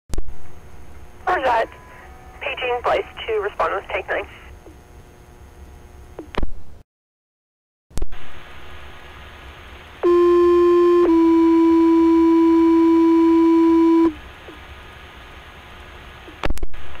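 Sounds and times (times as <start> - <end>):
radio hiss: 1.2 - 4.6.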